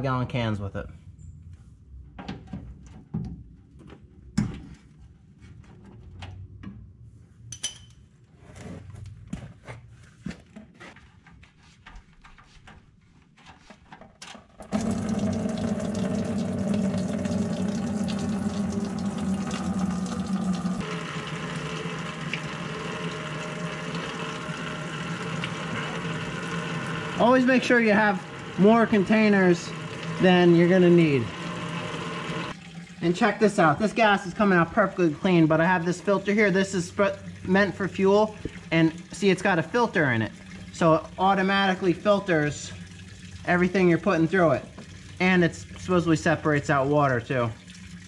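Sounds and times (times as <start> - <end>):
gasoline pouring into plastic bucket: 14.6 - 35.2
electric pump humming: 14.6 - 46.0.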